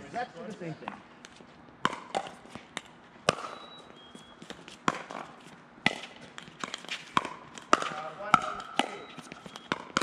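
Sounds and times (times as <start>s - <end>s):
plastic ball popping off paddles: 1.8s - 3.6s, 5.8s - 10.0s.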